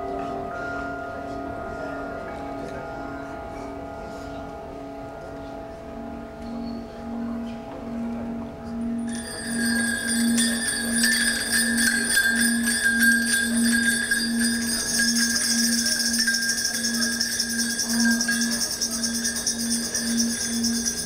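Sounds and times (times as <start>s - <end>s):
low pulsing tone: 8.0s - 21.0s
jingling metal shaker: 9.1s - 21.0s.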